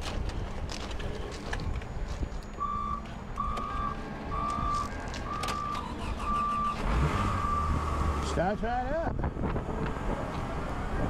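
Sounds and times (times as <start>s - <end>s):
electronic warning beeper: 1.8s - 8.2s.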